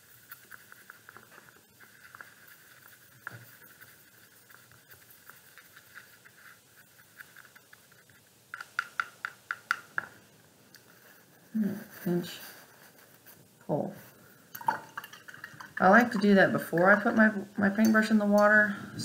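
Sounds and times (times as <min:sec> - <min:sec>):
paintbrush scraping plastic palette: 0:00.0 - 0:10.0
brush tapping palette: 0:00.0 - 0:10.2, 0:14.6 - 0:18.6.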